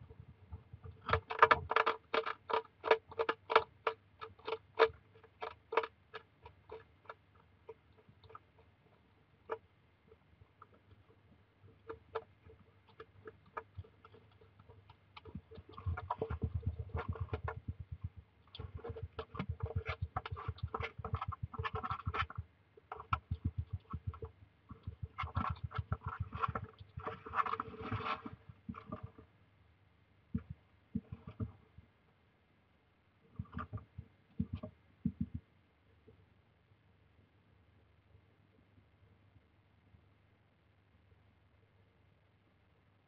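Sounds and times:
hedgehog chewing biscuit: 0:00.1 - 0:29.2.

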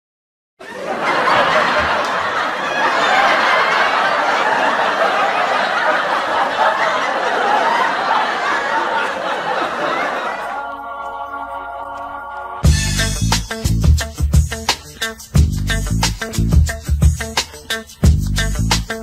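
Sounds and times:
crowd laughing: 0:00.6 - 0:12.5.

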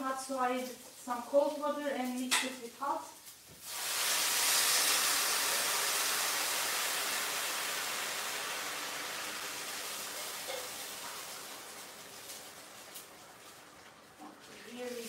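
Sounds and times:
hot water pouring into glass: 0:03.6 - 0:14.6.

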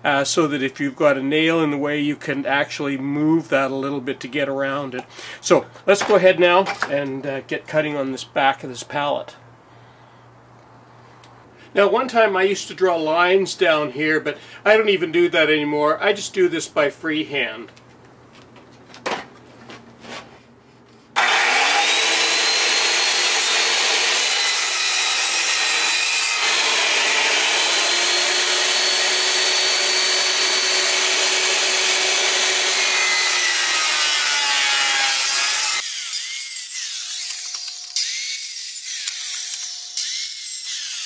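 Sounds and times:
circular saw cutting wood: 0:21.2 - 0:41.0.

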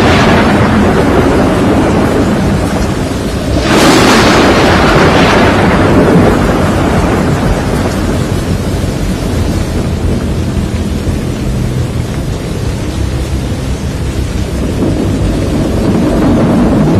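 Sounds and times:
thunder crack rolling: 0:00.0 - 0:13.3, 0:14.0 - 0:16.9
deep storm rumble: 0:00.0 - 0:16.9.

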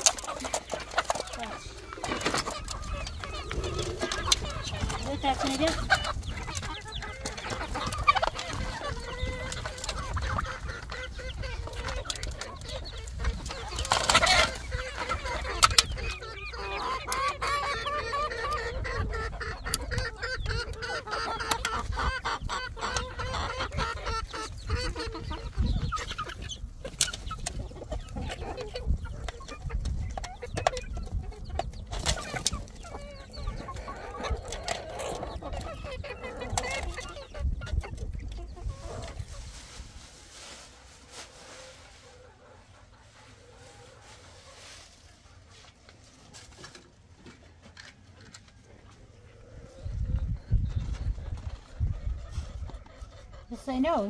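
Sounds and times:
birds calling: 0:00.0 - 0:39.5.

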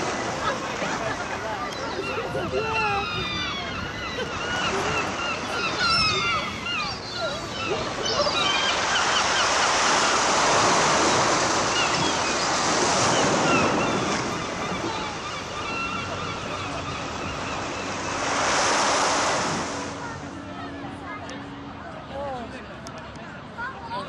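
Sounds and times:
surf washing on beach: 0:04.1 - 0:20.8
wind on microphone: 0:16.7 - 0:20.3.

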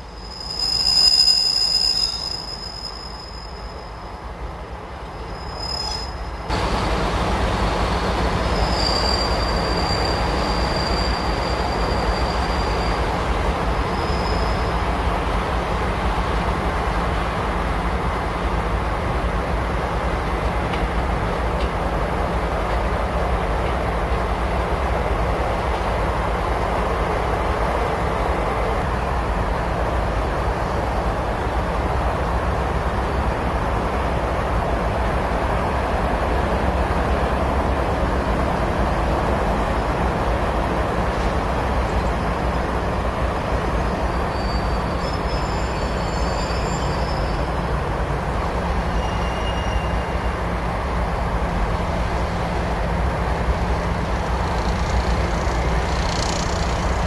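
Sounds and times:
high wheel squeals: 0:00.0 - 0:04.0, 0:05.1 - 0:06.8, 0:08.3 - 0:13.2, 0:13.8 - 0:14.8, 0:43.7 - 0:47.6, 0:48.8 - 0:50.4
diesel train rumbling: 0:00.0 - 0:57.0.

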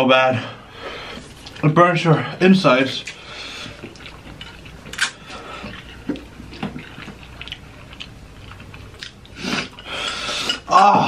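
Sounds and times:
wet chewing and mouth noises: 0:01.2 - 0:01.7, 0:03.0 - 0:10.7.

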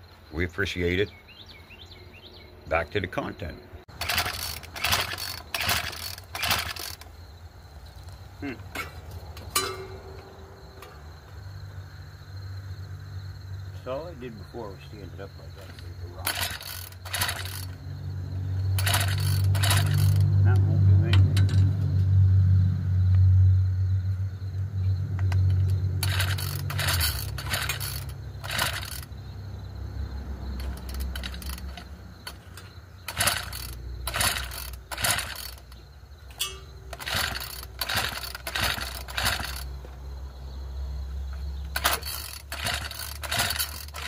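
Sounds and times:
starter rope pulls whirring: 0:03.9 - 0:07.1, 0:15.6 - 0:17.8, 0:18.7 - 0:21.8, 0:25.2 - 0:29.2, 0:30.5 - 0:39.8, 0:41.7 - 0:44.0.

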